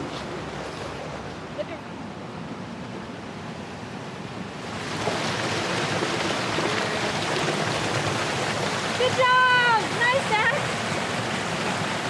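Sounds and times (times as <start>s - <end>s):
fast-flowing water rushing: 4.4s - 12.0s.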